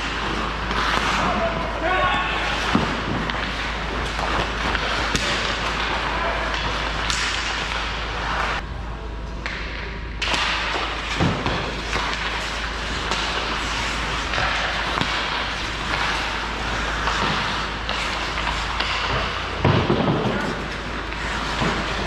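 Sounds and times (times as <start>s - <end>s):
hockey sticks knocking puck: 0.0s - 1.8s, 2.4s - 8.6s, 9.4s - 22.0s
ice rink noise: 0.0s - 22.0s.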